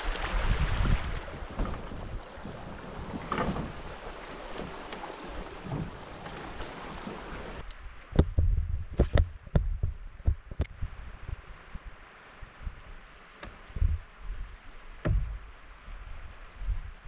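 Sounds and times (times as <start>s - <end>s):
river water rushing: 0.0s - 7.7s
wind buffeting microphone: 0.0s - 17.0s
sharp knocks: 15.0s - 15.5s.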